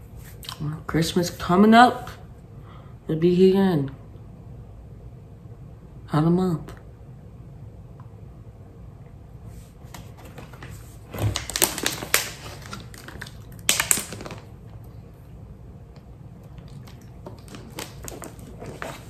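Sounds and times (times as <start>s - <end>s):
plastic bottle crinkling: 10.0s - 14.6s, 16.5s - 19.0s.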